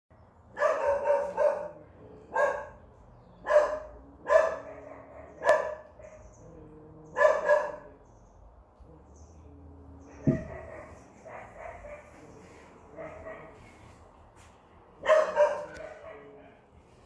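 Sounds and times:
dog barking: 0.5 - 2.8, 3.4 - 6.3, 7.1 - 8.0, 10.2 - 13.7, 15.0 - 16.6.

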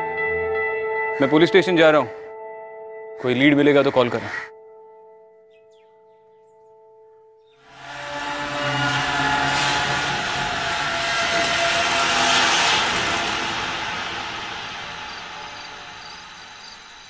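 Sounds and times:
low music tones: 0.0 - 17.0
whoosh: 7.7 - 17.0.

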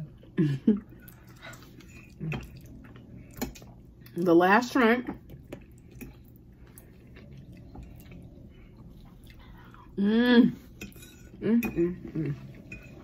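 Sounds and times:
cutlery clinking against dishes: 10.8 - 12.0, 12.6 - 13.0.

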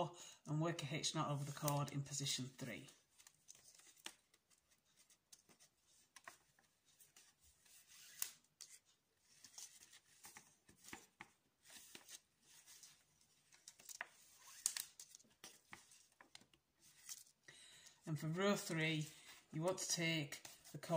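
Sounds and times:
cord rubbing and swishing: 4.5 - 15.0.

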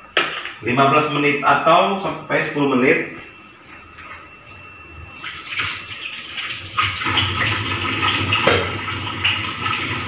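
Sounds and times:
tap water running into sink: 5.2 - 10.0
pot knocking in basin: 8.4 - 8.8.

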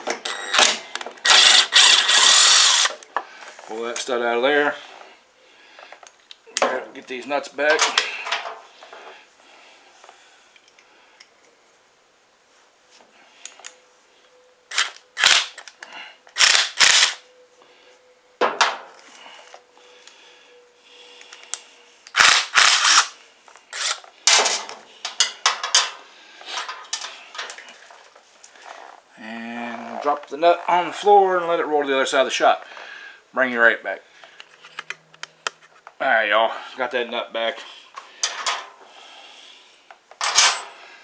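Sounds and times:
metal nuts and tools clinking: 23.7 - 26.0, 26.6 - 27.8, 38.2 - 38.8, 40.2 - 40.8.

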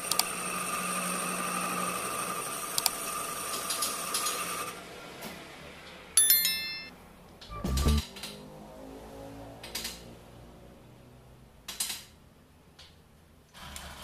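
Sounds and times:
bell ding: 6.2 - 8.0.

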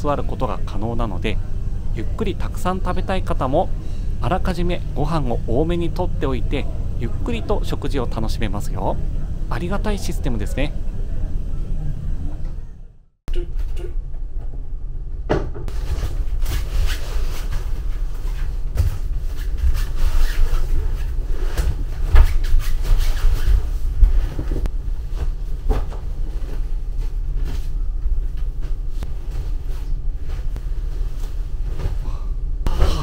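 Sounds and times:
ferry low rumble: 0.0 - 33.0.

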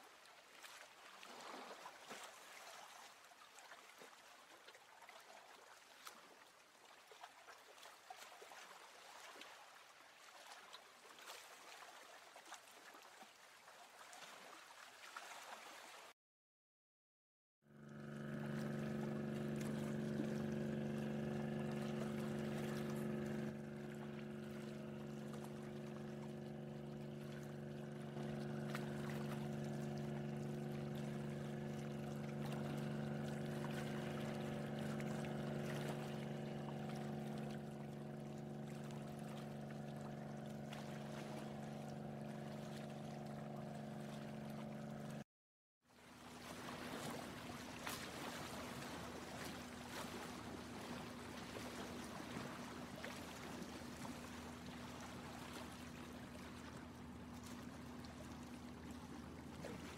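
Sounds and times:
boat motor running: 17.6 - 45.2, 46.0 - 59.9
lower hum with hiss: 17.9 - 44.8.

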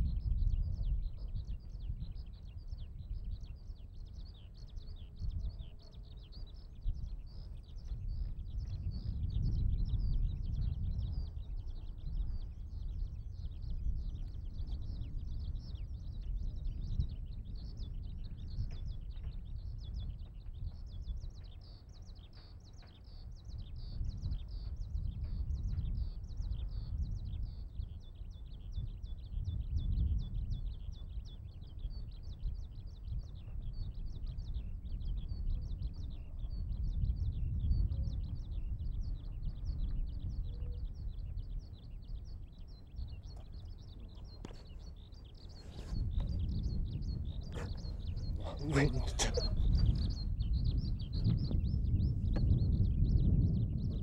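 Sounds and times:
skylark singing: 0.1 - 54.0.

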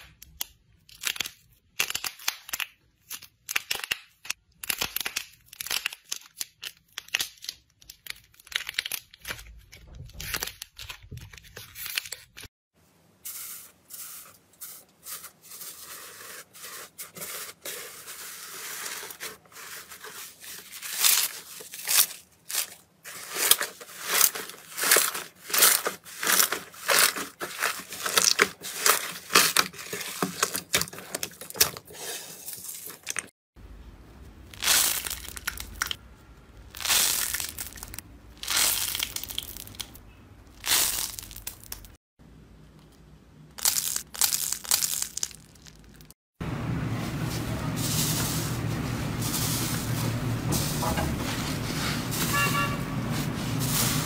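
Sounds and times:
slime crackling and tearing: 0.3 - 9.4, 19.6 - 31.8, 36.7 - 40.0, 43.6 - 46.1.

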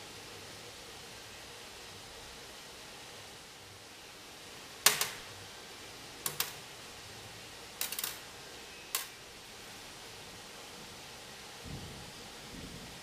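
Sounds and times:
metal fasteners clicking on steel: 6.3 - 6.6, 7.8 - 8.2.

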